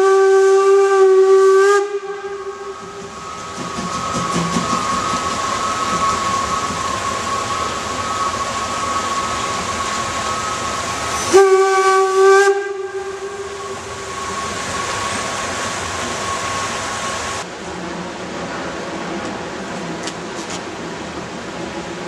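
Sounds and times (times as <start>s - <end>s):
steam whistle blast: 0.0s - 17.4s
steam hissing: 0.0s - 22.0s.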